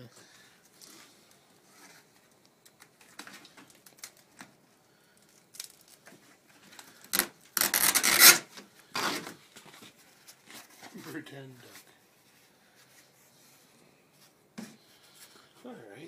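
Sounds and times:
pliers scraping on wood: 0:07.2 - 0:08.4.

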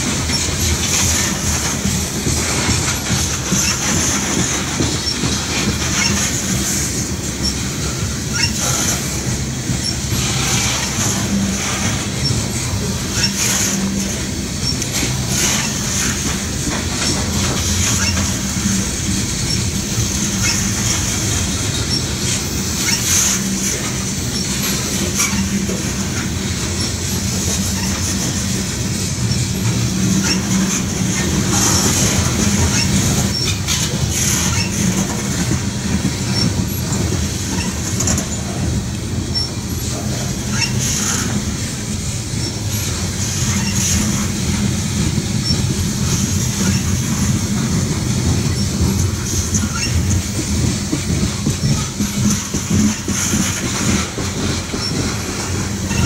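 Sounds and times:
steel wheels rumbling on rails: 0:00.0 - 0:56.0
wheel and coupler clicks: 0:00.0 - 0:56.0
high wheel squeal: 0:00.2 - 0:56.0.

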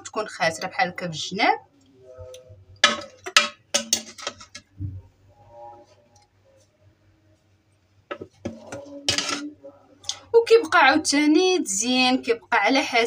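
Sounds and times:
metal spoon clinking on dishes: 0:02.8 - 0:04.6, 0:08.7 - 0:09.5.

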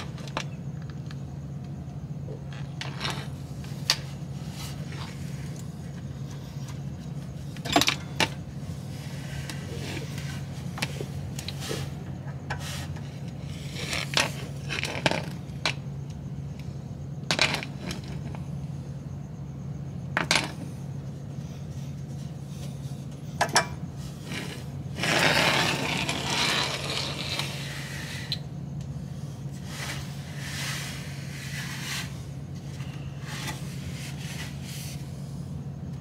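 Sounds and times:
steady low hum: 0:00.0 - 0:36.0
scraping: 0:21.6 - 0:28.4, 0:29.3 - 0:35.2.

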